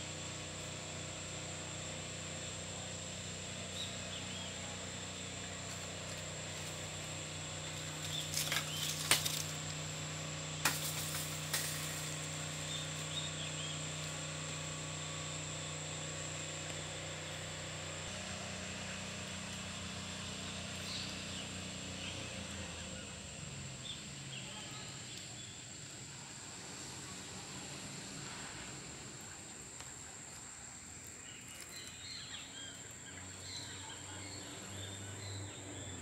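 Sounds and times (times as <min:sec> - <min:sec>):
background hum: 0:00.0 - 0:36.0
sharp knocks and rustles: 0:07.7 - 0:09.8, 0:10.6 - 0:13.1.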